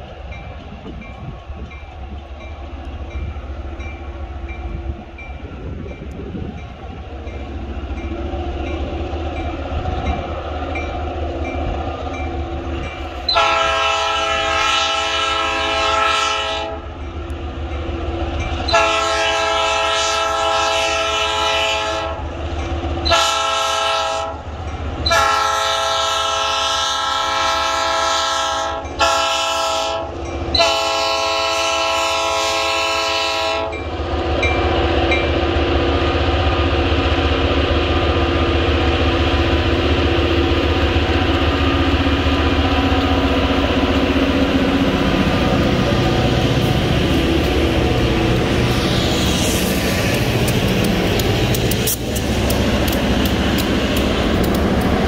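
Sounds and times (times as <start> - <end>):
locomotive air horn blasts: 13.3 - 16.9, 18.7 - 22.2, 23.0 - 24.4, 25.0 - 33.8.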